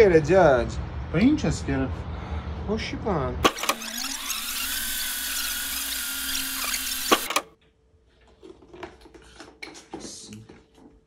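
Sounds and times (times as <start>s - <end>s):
motor whirring with a whine: 3.5s - 7.4s.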